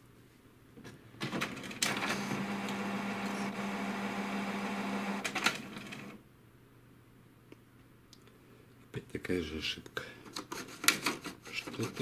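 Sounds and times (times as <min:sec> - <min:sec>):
printer clicks: 0:01.2 - 0:03.4, 0:05.1 - 0:06.0
printer paper-feed motor humming: 0:01.8 - 0:06.2.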